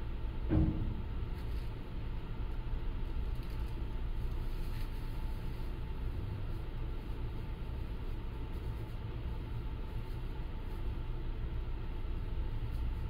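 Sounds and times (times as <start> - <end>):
faint constant hum: 0.0 - 13.0.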